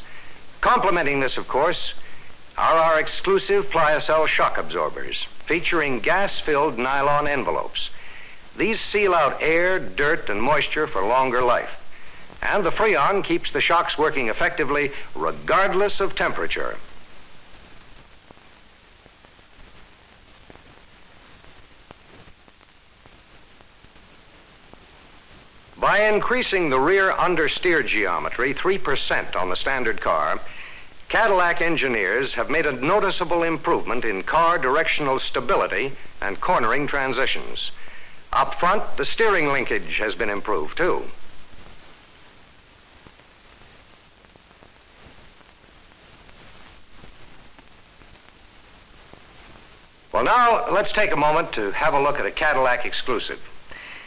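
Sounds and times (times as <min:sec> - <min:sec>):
film soundtrack hiss: 0:00.0 - 0:54.0
small clicks and pops: 0:43.0 - 0:49.9.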